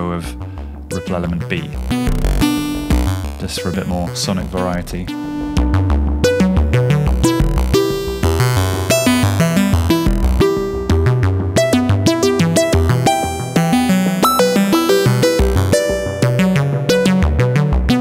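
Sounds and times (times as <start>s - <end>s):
synthesizer sequence of short notes: 0.9s - 9.3s.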